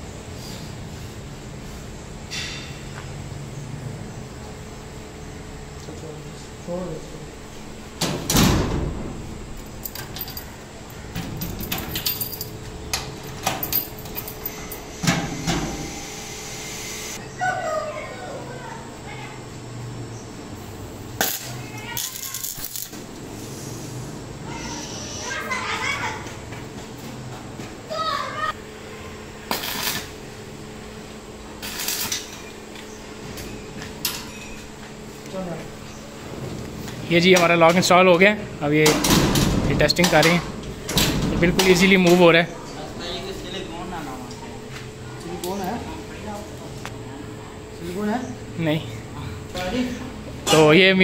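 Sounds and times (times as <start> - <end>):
arc welding crackle and hiss: 14.7 - 17.2, 20.6 - 25.3, 29.4 - 32.9.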